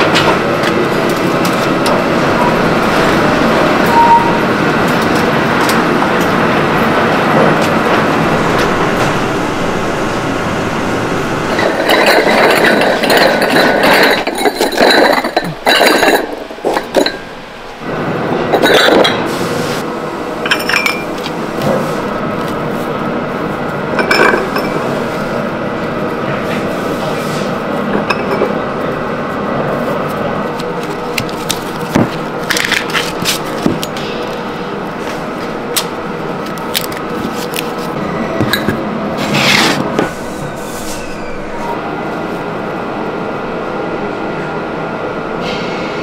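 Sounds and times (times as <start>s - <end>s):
kiln car rumbling on rails: 0.0s - 19.3s
ceramic pots clinking: 11.6s - 17.2s.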